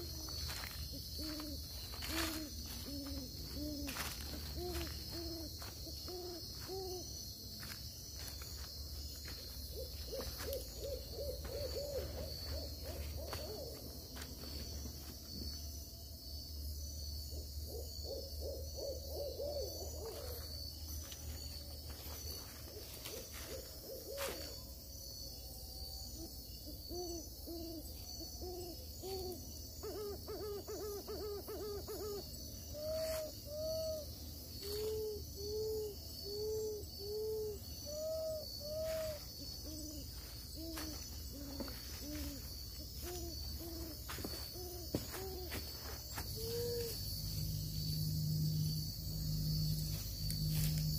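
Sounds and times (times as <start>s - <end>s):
night insects chorus: 0.0s - 50.9s
owl hooting: 0.9s - 7.1s, 9.7s - 13.8s, 17.3s - 20.4s, 26.2s - 47.0s.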